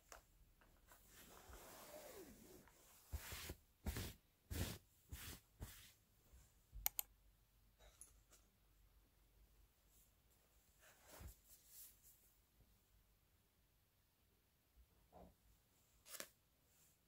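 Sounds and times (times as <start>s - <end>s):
hand rustling over bedsheet: 0.9s - 6.0s
sharp clicks: 6.8s - 7.1s.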